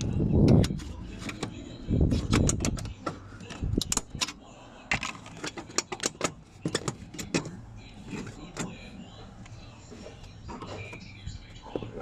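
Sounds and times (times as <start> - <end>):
screwdriver and metal parts rattling: 0.0 - 8.8.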